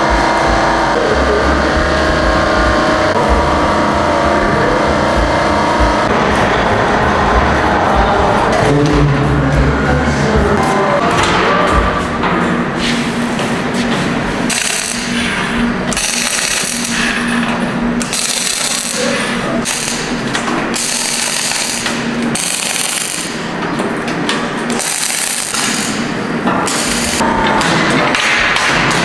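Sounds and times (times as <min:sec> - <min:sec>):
low hum: 0:00.0 - 0:29.0
welding arc crackling: 0:14.4 - 0:29.0.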